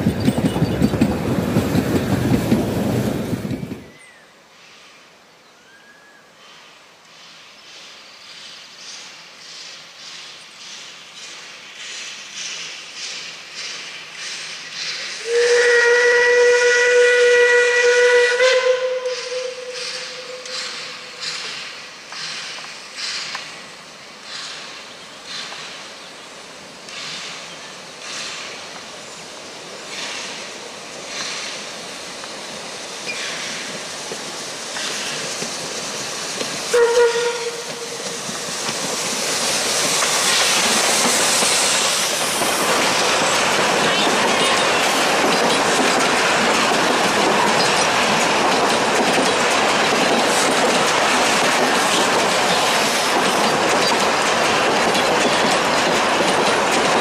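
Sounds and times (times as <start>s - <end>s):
carriage wheels clattering on rails: 0.0s - 2.7s, 43.2s - 57.0s
steam locomotive exhaust chuffs: 7.8s - 25.9s, 29.8s - 43.8s
train whistle blast: 15.2s - 20.6s, 36.7s - 38.0s.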